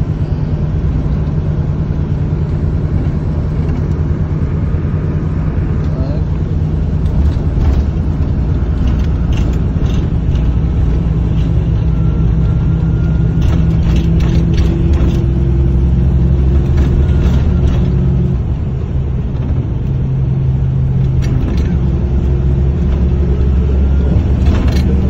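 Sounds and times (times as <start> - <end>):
engine and tyre rumble: 0.0 - 25.0
light clicks and rattles: 5.8 - 11.6, 13.4 - 15.4.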